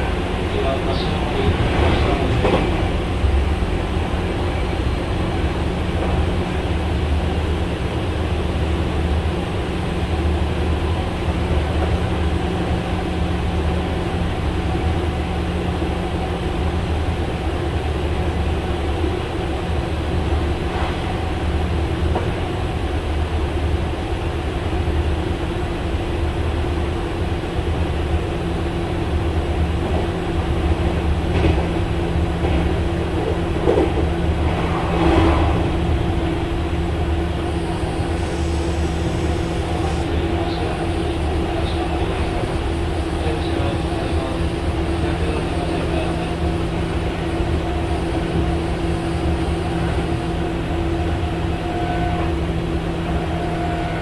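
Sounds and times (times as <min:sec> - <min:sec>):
train wheel and track rumble: 0:00.0 - 0:54.0
track knocks: 0:01.3 - 0:03.0, 0:30.9 - 0:36.6.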